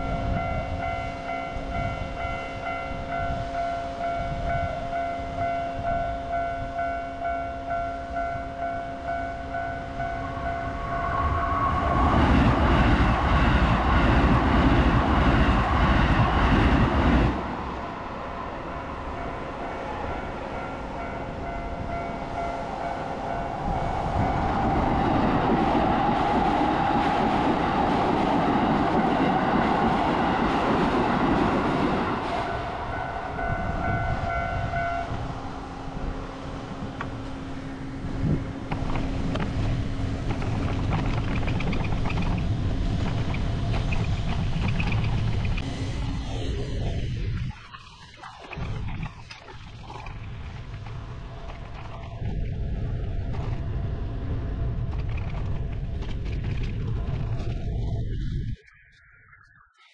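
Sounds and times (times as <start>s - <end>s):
rhythmic ringing tone: 0.0s - 12.1s
train passing rumble: 0.0s - 58.6s
steady rushing noise: 9.3s - 59.7s.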